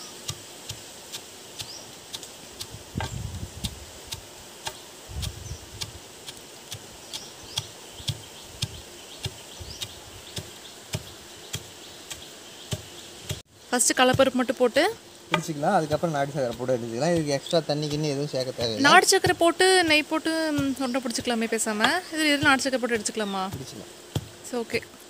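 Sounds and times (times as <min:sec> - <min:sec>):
pestle pounding in stone mortar: 0:15.3 - 0:24.3.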